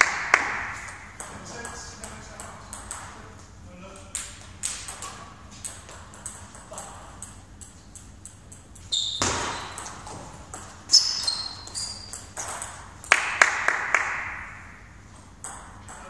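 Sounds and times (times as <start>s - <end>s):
table tennis ball clicks: 4.0s - 13.8s
shoes squeaking on floor: 8.8s - 12.6s.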